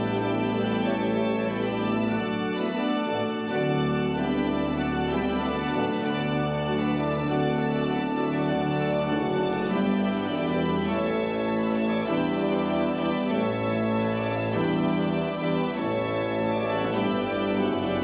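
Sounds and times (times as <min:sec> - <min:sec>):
organ playing sustained chords: 0:00.0 - 0:18.0.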